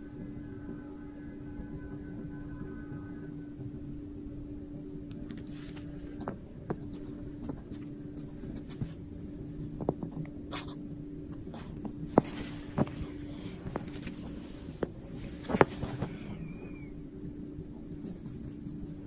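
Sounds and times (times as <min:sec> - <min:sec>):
steady low hum: 0:00.0 - 0:19.0
light taps and scuffles: 0:05.3 - 0:09.0, 0:11.4 - 0:16.2
small dog playing: 0:05.4 - 0:09.0, 0:09.6 - 0:16.8.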